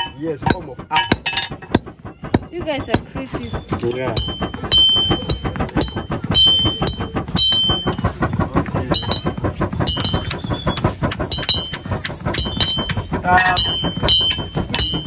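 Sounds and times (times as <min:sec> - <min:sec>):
hammer striking metal: 0:00.0 - 0:03.1
bellows puffing: 0:00.0 - 0:15.0.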